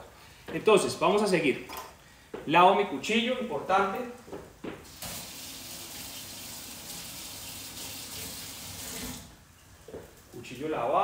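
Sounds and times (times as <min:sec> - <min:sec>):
tap water running into sink: 0:04.9 - 0:09.3.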